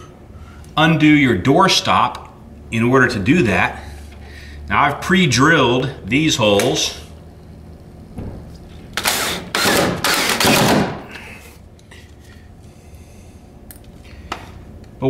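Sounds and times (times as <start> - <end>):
cordless drill driving screw: 9.0 - 10.7.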